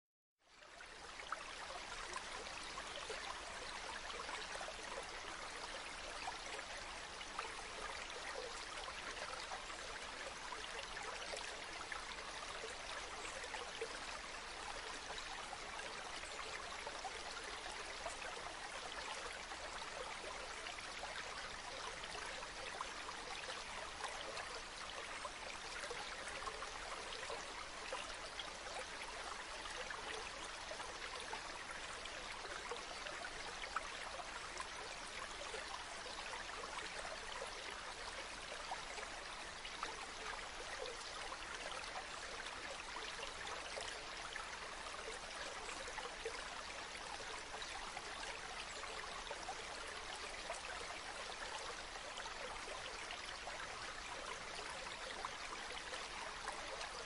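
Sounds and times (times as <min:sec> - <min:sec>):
stream rushing and babbling: 0:00.5 - 0:57.0.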